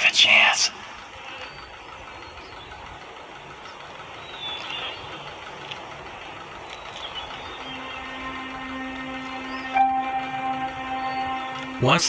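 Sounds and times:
held low music note: 7.2s - 12.0s.

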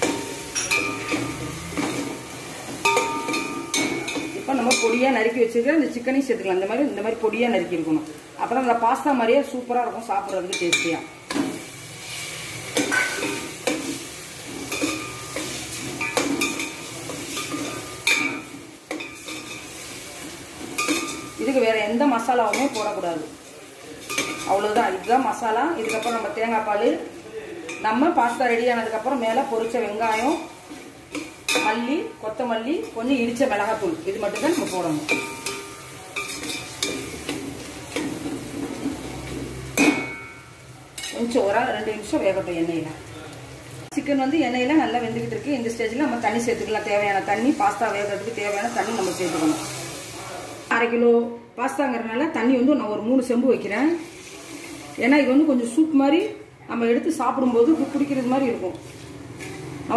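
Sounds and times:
pot ringing: 0.0s - 5.1s, 34.3s - 37.2s, 39.8s - 41.2s
chicken sizzling in hot oil: 0.0s - 50.8s, 53.5s - 55.8s, 57.2s - 59.9s
spoon scraping a metal pot: 12.7s - 13.7s, 36.2s - 40.3s.

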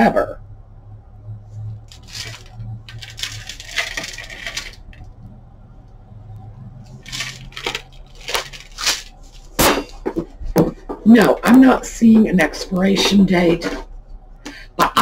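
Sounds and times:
plastic can rubbing and scraping: 1.9s - 5.0s, 6.9s - 9.4s.

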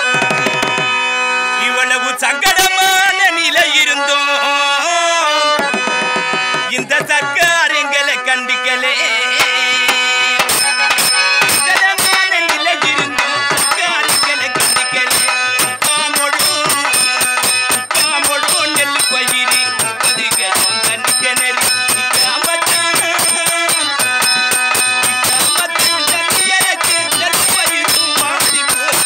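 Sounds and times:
hand drum beating fast rhythm: 0.0s - 1.0s, 5.6s - 7.5s, 9.4s - 29.0s
electronic keyboard melody: 0.0s - 29.0s.

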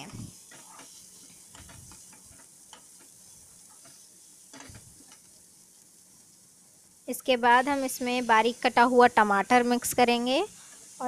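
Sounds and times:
onions sizzling in oil: 0.0s - 11.0s
metal ladle scraping a pan: 0.5s - 5.2s.

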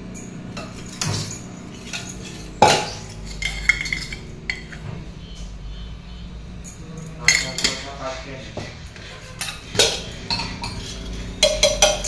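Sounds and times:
metal container clinking: 0.0s - 4.9s, 6.6s - 12.0s
sharp metallic clank: 0.2s - 5.0s.

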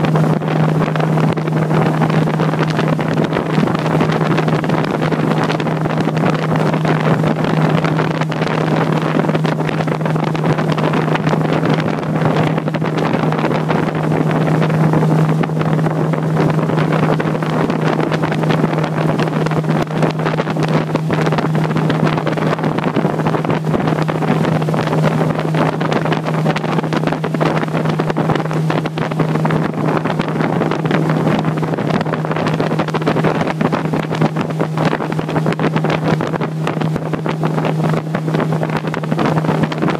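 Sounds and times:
motorboat engine running: 0.0s - 39.9s.

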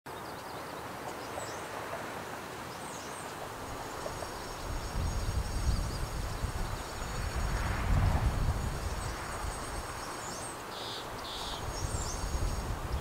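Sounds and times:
steady background hiss: 0.1s - 13.0s
bird chirps: 10.2s - 12.6s.

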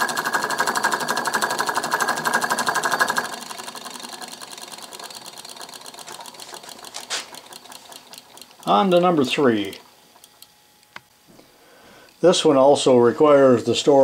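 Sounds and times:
electric model engine clattering: 0.0s - 10.5s.

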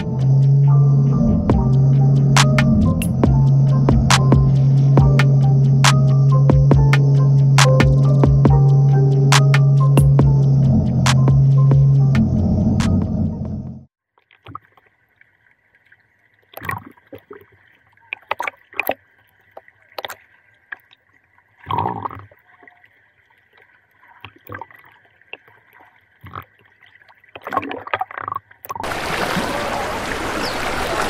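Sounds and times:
high motor whine: 0.0s - 13.8s
hull splashing on water: 28.8s - 31.0s.

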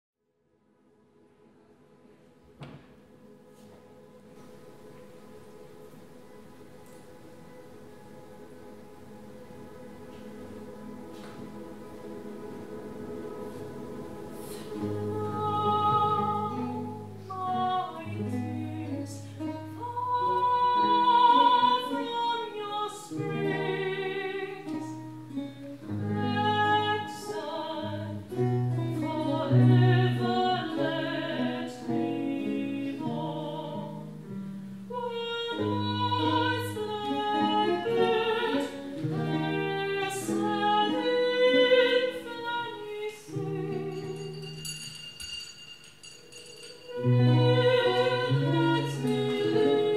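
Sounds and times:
viols playing sustained notes: 3.2s - 34.2s, 34.9s - 44.3s, 46.9s - 49.9s
woman singing with vibrato: 14.4s - 34.2s, 34.9s - 44.5s, 46.9s - 49.9s.

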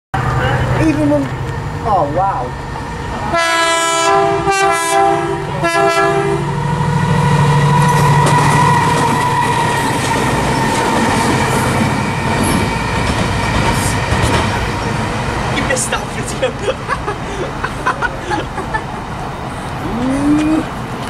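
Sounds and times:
diesel locomotive engine rumble: 0.2s - 21.0s
train horn blasts: 3.2s - 6.6s
wheels clattering on rails: 7.7s - 19.1s.

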